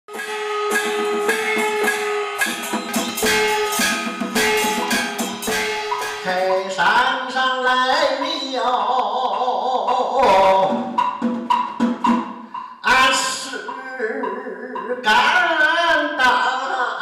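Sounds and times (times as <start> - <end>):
gong and cymbal strikes: 0.1 - 6.4
higher wavering melody: 0.1 - 6.4
held melodic line: 0.1 - 6.6.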